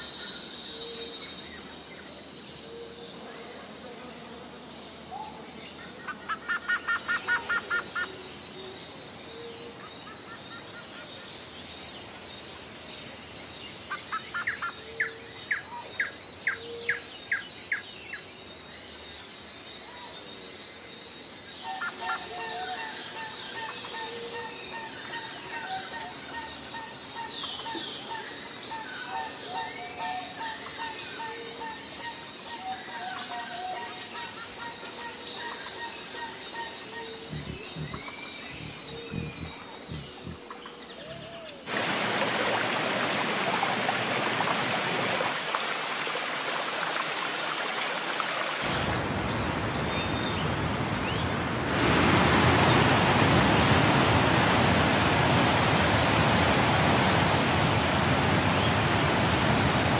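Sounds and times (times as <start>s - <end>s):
songbirds singing: 0.0s - 41.8s.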